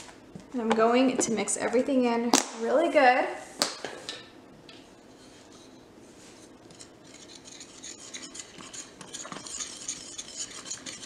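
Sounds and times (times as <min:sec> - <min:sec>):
whisk scratching through flour: 0:05.2 - 0:11.0.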